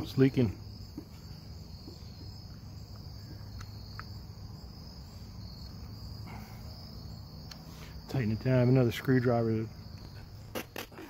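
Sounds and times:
crickets trilling: 0:00.0 - 0:11.0.

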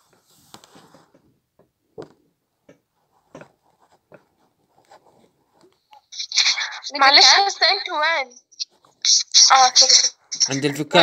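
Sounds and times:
soft rustle: 0:00.0 - 0:01.4, 0:02.9 - 0:05.9
faint clicks and taps: 0:00.1 - 0:06.2.

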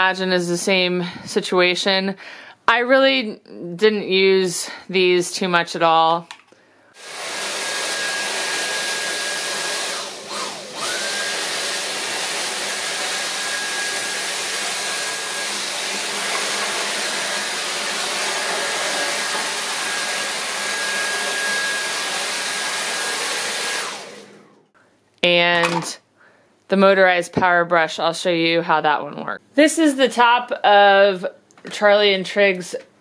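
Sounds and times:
cordless vacuum running: 0:07.0 - 0:24.6.

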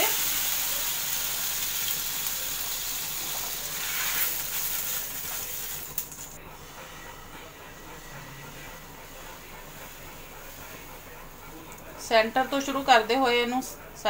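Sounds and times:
water sizzling on hot pan: 0:00.0 - 0:06.1.

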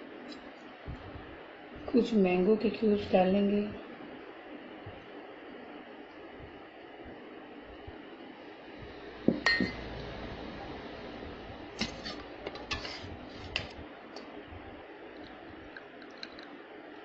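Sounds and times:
spoon clinking against glass: 0:09.4 - 0:09.8.

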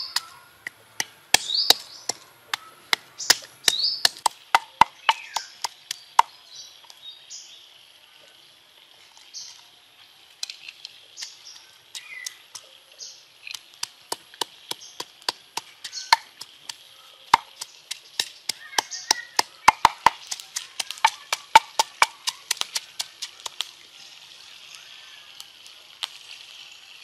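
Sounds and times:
wooden pestle pounding in mortar: 0:00.0 - 0:06.3, 0:13.8 - 0:23.6.

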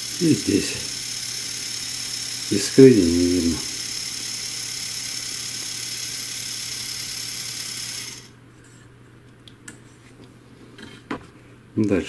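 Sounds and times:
small motor whirring: 0:00.0 - 0:08.4.

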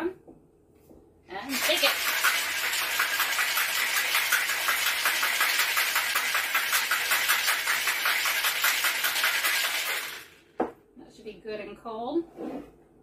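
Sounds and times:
ice rattling in cocktail shaker: 0:01.5 - 0:10.4.

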